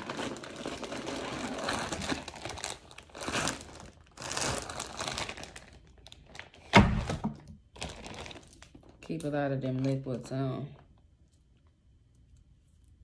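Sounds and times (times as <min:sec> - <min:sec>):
rustling in a handbag: 0:00.0 - 0:06.2.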